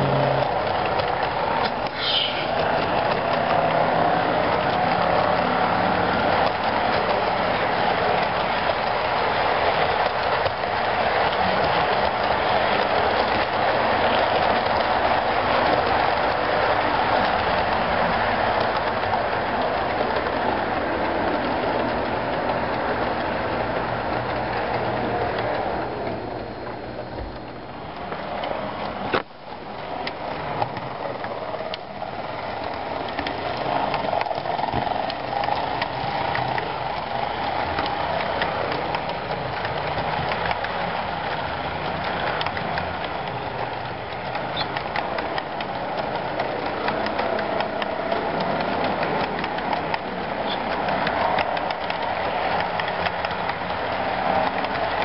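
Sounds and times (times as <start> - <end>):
low diesel engine drone: 0.0 - 0.6
model train running on track: 0.0 - 55.0.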